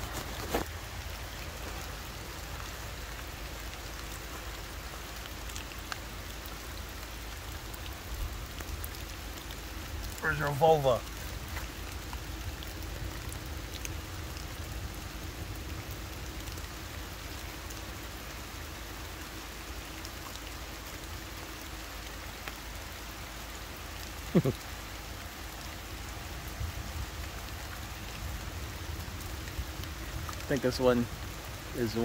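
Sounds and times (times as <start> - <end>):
rain falling on foliage: 0.0 - 32.0.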